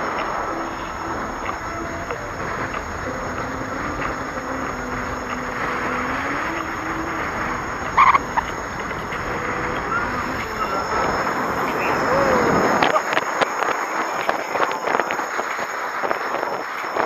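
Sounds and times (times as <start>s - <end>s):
sharp high chirp: 0.0s - 13.0s
faint motor whine: 0.0s - 17.0s
wind and tyre noise: 0.0s - 17.0s.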